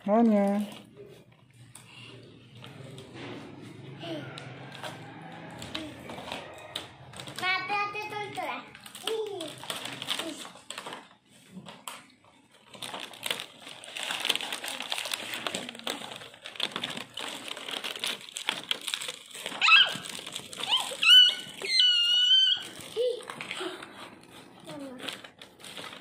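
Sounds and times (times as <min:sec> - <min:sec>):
plastic packaging crinkling: 0:04.0 - 0:26.0
high-pitched squeaky tones: 0:19.6 - 0:22.9.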